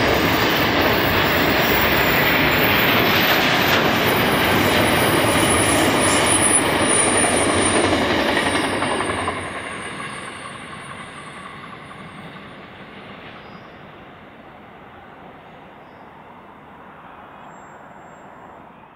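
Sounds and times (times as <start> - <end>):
high wheel squeal: 4.0 - 12.7.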